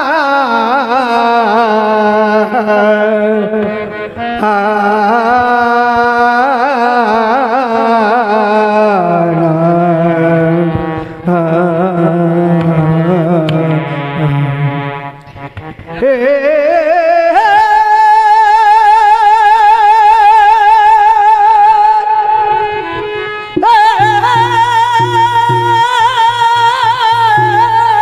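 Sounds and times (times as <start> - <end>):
wavering held-note melody: 21.0 - 28.0.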